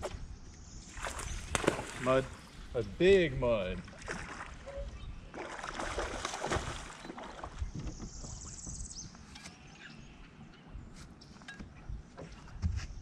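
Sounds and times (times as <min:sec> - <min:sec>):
fish splashing at water surface: 0:01.0 - 0:02.4, 0:05.3 - 0:07.6.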